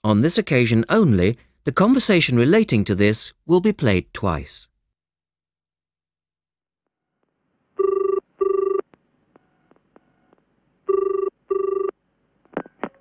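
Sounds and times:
telephone ringing: 7.8s - 8.9s, 10.9s - 11.9s.

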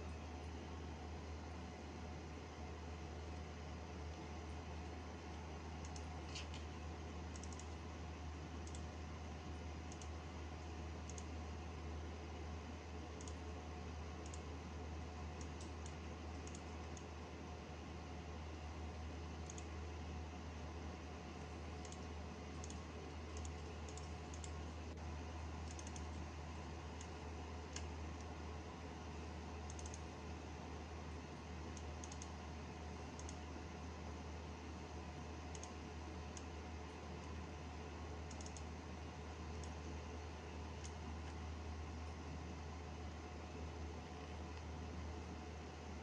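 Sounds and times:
computer hum and hiss: 0.0s - 46.0s
computer mouse clicks: 5.8s - 7.8s, 8.6s - 9.0s, 9.9s - 10.2s, 11.0s - 11.4s, 13.2s - 13.4s, 14.2s - 14.5s, 15.4s - 17.1s, 19.4s - 19.7s, 21.8s - 24.6s, 25.6s - 26.3s, 27.0s - 28.3s, 29.6s - 30.1s, 31.7s - 32.4s, 33.1s - 33.4s, 35.5s - 36.6s, 38.2s - 38.7s, 39.5s - 39.9s, 40.8s - 41.4s.

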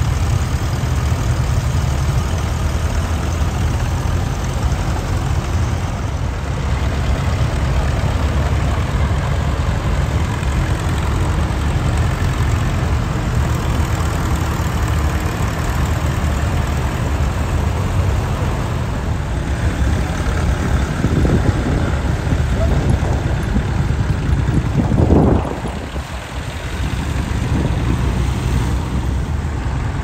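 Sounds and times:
tractor engines rumbling: 0.0s - 30.0s.

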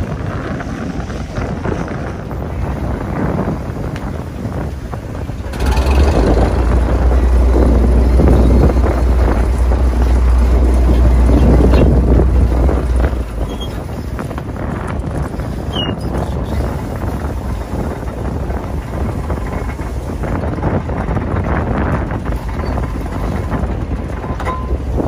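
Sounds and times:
net winch engine drone: 5.2s - 14.1s.

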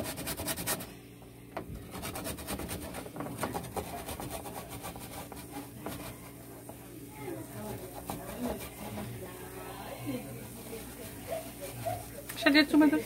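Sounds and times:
garlic grated on metal grater: 1.9s - 6.3s, 7.6s - 9.2s.

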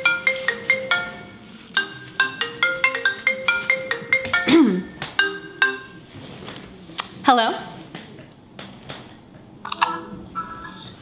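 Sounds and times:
marimba phone ringtone: 0.0s - 6.1s, 9.8s - 11.0s.

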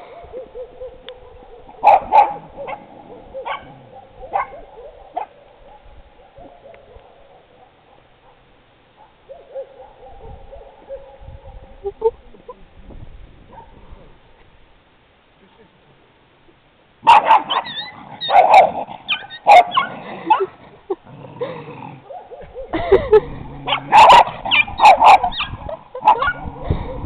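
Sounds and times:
dogs howling calls: 0.0s - 8.4s, 9.0s - 11.8s, 17.1s - 20.5s, 22.0s - 22.8s, 23.6s - 27.0s
dogs barking: 0.0s - 11.8s, 13.5s - 13.9s, 17.0s - 20.6s, 21.9s - 27.0s.

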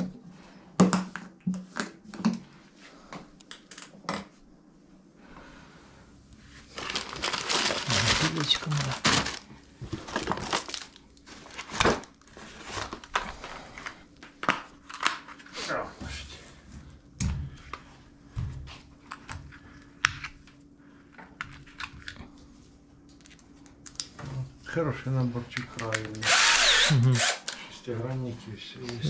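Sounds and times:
fabric bag and paper rustling: 6.5s - 13.8s.

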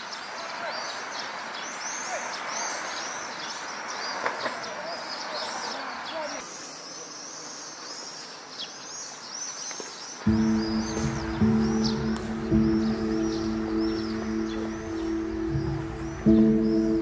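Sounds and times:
small birds chirping: 0.0s - 17.0s
steady background hiss: 6.4s - 17.0s.

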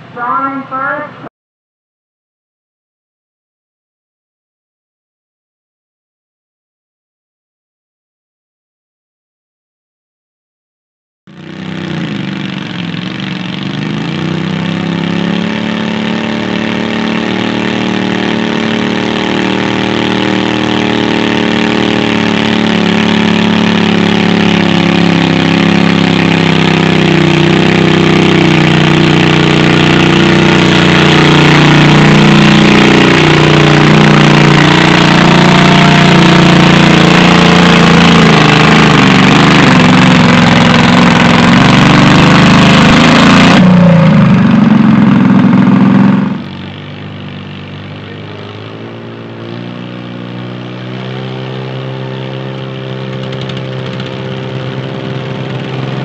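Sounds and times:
tractor engine under load: 11.4s - 56.0s.

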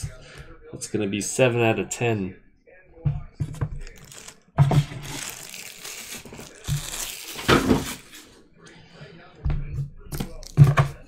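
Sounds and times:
plastic packaging crinkling: 3.8s - 8.4s.

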